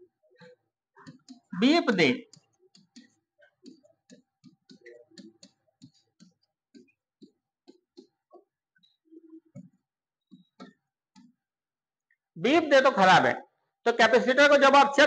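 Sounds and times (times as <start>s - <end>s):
marker tapping and scratching on board: 1.0s - 8.5s, 9.2s - 11.4s.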